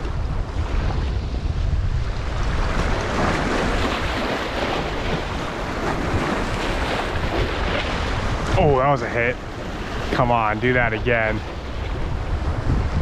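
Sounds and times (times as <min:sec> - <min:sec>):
wind buffeting microphone: 0:00.0 - 0:13.0
small waves washing over rocks: 0:02.4 - 0:12.0.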